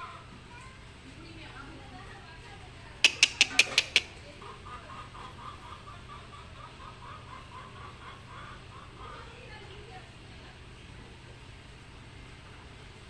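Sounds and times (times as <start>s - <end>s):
sharp clicks: 3.0s - 4.1s
chicken clucking: 3.0s - 9.6s.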